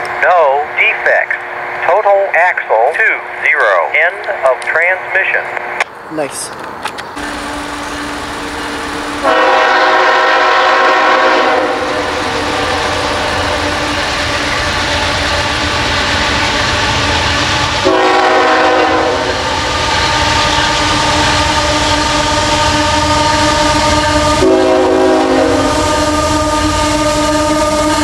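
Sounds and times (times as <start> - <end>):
train rumble and rail noise: 0.0 - 28.0
locomotive horn blasts: 7.2 - 15.2, 17.7 - 28.0.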